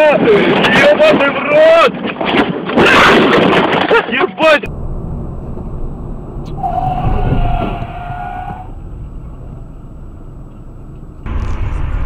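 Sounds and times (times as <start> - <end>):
car road noise: 4.6 - 12.0
tyres screeching: 4.7 - 11.3.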